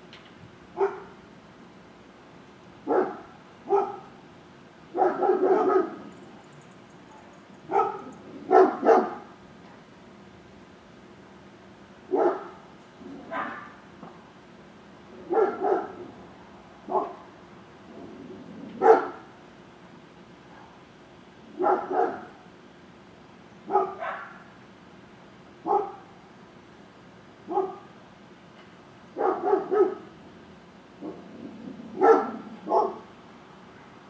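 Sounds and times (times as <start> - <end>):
dog barking: 0.8 - 1.2, 2.9 - 4.2, 5.0 - 6.1, 7.1 - 9.3, 12.1 - 12.6, 13.2 - 13.8, 15.3 - 16.1, 16.9 - 17.2, 18.8 - 19.2, 21.6 - 22.4, 23.7 - 24.5, 25.6 - 26.1, 27.5 - 27.9, 29.2 - 30.1, 31.0 - 31.3, 32.0 - 33.1.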